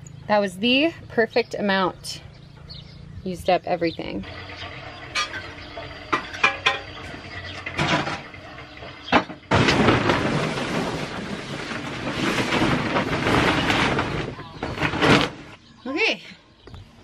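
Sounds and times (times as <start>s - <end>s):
plastic tarp rustling and crinkling: 9.5s - 15.6s.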